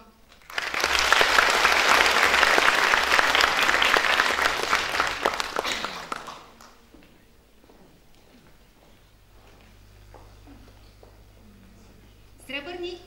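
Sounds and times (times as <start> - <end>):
audience applause: 0.3 - 6.8.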